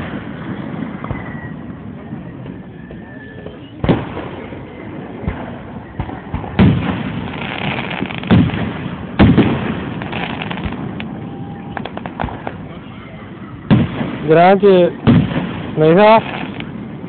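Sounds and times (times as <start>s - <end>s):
firework crackling: 0.0s - 17.0s
firework shells bursting: 5.3s - 12.7s, 13.7s - 17.0s.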